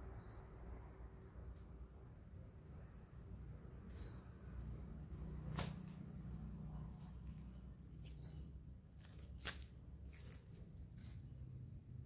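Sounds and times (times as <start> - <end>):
steady low hum: 0.0 - 12.0
sickle swish cutting stem: 5.5 - 6.0, 9.1 - 11.2.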